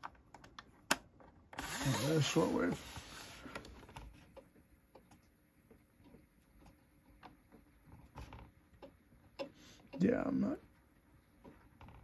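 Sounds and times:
faint hiss: 1.6s - 3.7s
faint ticks and crackles: 3.5s - 12.0s.

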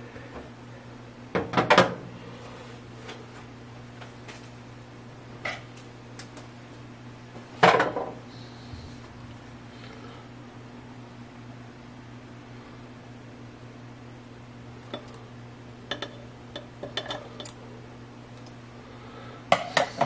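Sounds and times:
steady low hum: 0.0s - 20.0s
utensils and dishes clattering: 15.9s - 17.6s.

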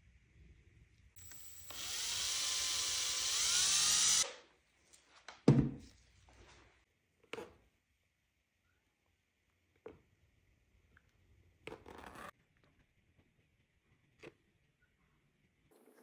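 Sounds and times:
cordless drill motor whine: 1.2s - 4.4s.

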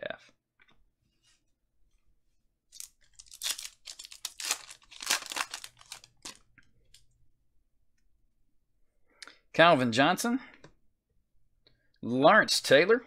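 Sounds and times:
foil wrapper tearing and crinkling: 2.8s - 6.4s.

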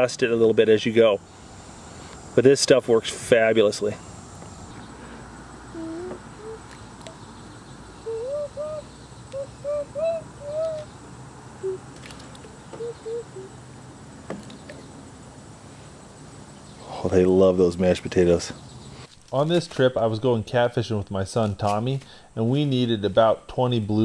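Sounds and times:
steady outdoor background hum: 0.0s - 24.0s
bird calling in short low notes: 5.7s - 7.3s, 8.0s - 11.0s, 11.6s - 13.6s.

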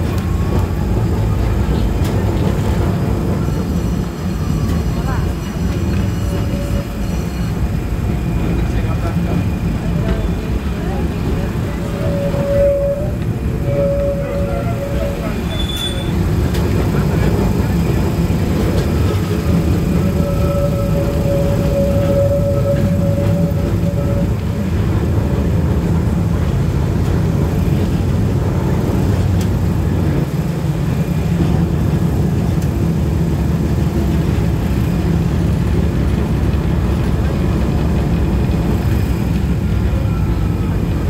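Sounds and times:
tram rumbling and rattling on rails: 0.0s - 41.0s
steady whine: 6.5s - 25.2s.

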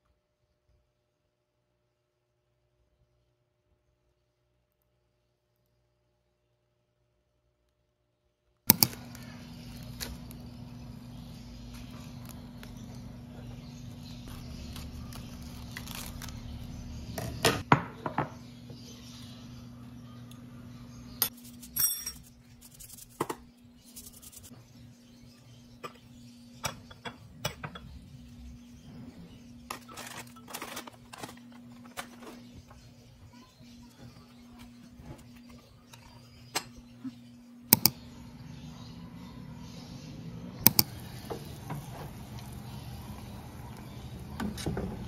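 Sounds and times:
sharp clicks: 8.7s - 9.2s, 37.7s - 38.0s, 40.6s - 41.0s
glass bowls and utensils clinking: 21.3s - 22.3s.

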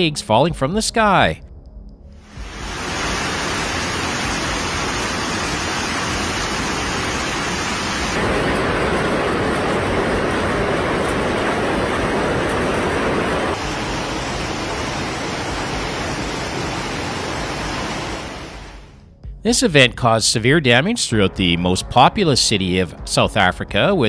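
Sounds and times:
wind: 2.2s - 18.8s
hail and rain pelting down: 2.3s - 18.8s.

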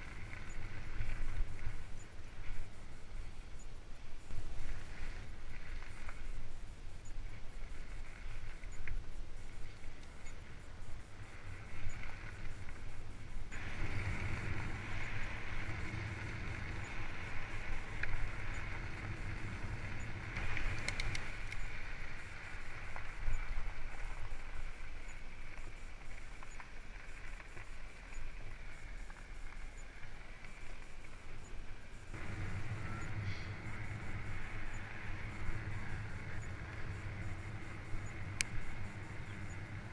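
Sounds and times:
wind on microphone: 0.0s - 25.1s, 32.1s - 39.9s
bike tyres rumbling on tarmac: 0.0s - 39.9s
light clicks: 20.3s - 21.7s.

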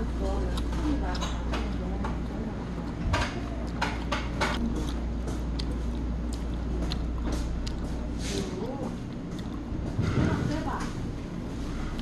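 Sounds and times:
steady low hum: 0.0s - 12.0s
chopsticks tapping plates: 0.6s - 2.3s, 3.1s - 4.6s.

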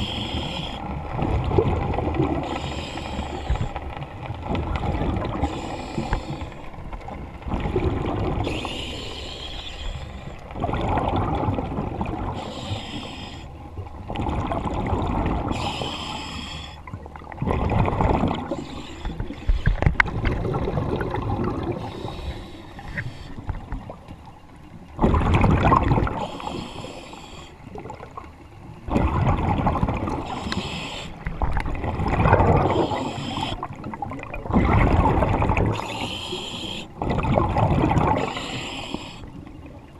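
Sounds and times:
regulator hissing inhale: 0.0s - 0.8s, 2.4s - 3.8s, 5.4s - 6.7s, 8.4s - 10.4s, 12.4s - 13.6s, 15.5s - 16.9s, 18.5s - 19.9s, 21.8s - 23.5s, 26.2s - 27.6s, 30.2s - 31.3s, 32.7s - 33.7s, 35.8s - 37.0s, 38.2s - 39.4s
exhaled bubbles rumbling: 0.0s - 9.3s, 10.2s - 12.7s, 13.6s - 16.0s, 16.8s - 26.7s, 27.7s - 39.9s.

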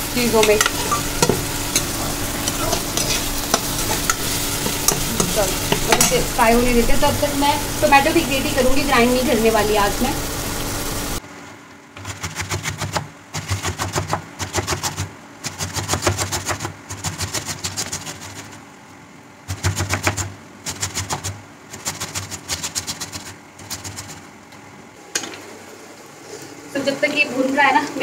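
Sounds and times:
onions sizzling in a frying pan: 0.0s - 11.2s
tomato rasping on a metal grater: 0.4s - 6.1s, 12.0s - 18.6s, 19.5s - 24.3s.

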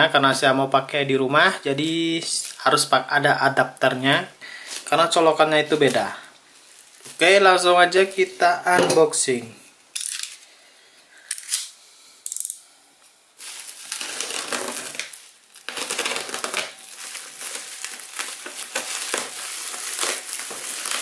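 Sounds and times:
bubble wrap crackling and rustling: 4.6s - 8.3s, 13.4s - 21.0s.

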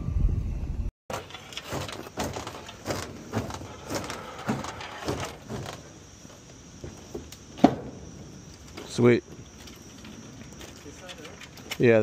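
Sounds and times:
wooden pallet knocking and scraping: 1.1s - 9.5s.

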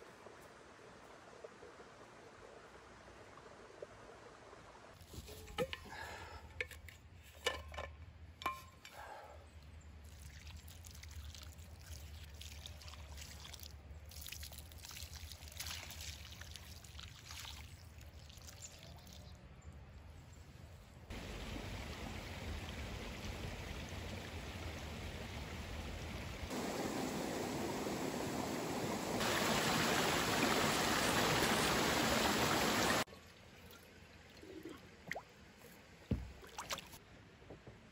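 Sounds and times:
water pouring onto soil: 10.0s - 19.3s.

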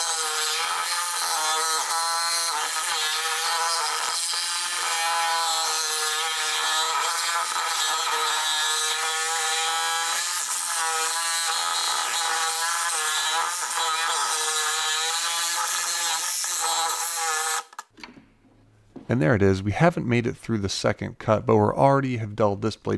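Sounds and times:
reciprocating saw cutting steel: 0.0s - 17.9s.

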